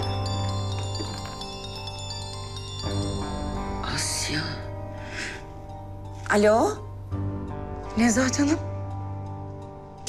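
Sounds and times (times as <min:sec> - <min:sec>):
phone ringtone chiming: 0:00.0 - 0:03.3.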